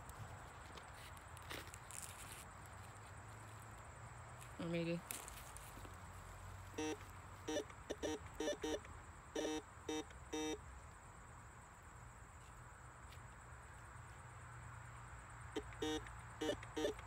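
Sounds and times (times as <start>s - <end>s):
metal detector buzzy beeps: 6.8s - 10.6s, 15.6s - 17.0s.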